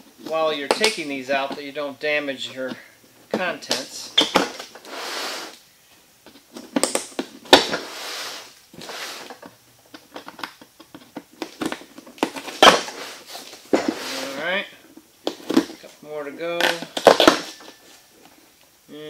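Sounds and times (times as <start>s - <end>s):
cardboard scraping and tearing: 12.2s - 14.5s.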